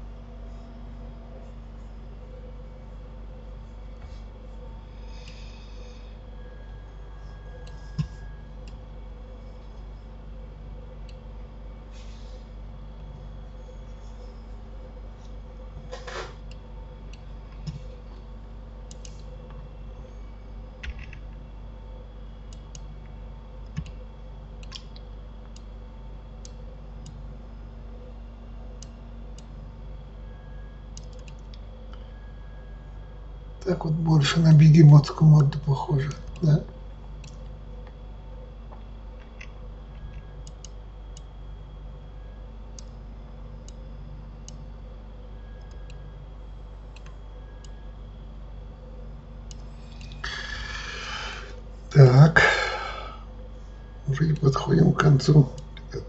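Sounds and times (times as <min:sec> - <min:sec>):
steady low hum: 0:00.0 - 0:56.0
computer mouse clicking: 0:18.9 - 0:19.3, 0:23.6 - 0:24.0, 0:24.6 - 0:25.7, 0:31.0 - 0:31.6, 0:39.2 - 0:41.3.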